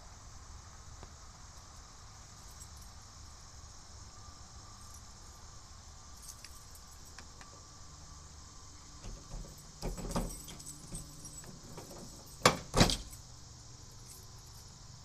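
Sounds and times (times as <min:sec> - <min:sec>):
keys jangling at car lock: 0:06.2 - 0:07.2, 0:09.0 - 0:13.2, 0:14.0 - 0:14.7.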